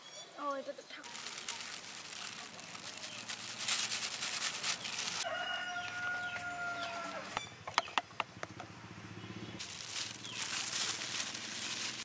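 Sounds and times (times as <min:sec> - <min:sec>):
flour rustling through a sieve: 0:01.0 - 0:05.3, 0:09.6 - 0:12.0
rooster crowing: 0:05.2 - 0:07.4.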